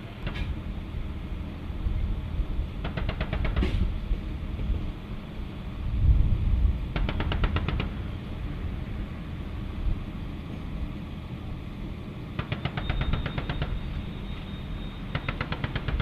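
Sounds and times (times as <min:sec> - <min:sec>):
steady low rumble: 0:00.0 - 0:02.9, 0:03.7 - 0:12.4.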